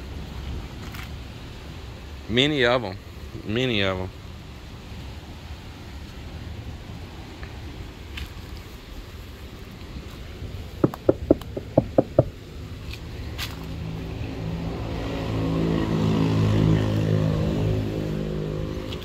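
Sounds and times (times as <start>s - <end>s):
sharp ringing knocks: 10.8s - 12.3s
motor vehicle engine running: 10.8s - 12.5s.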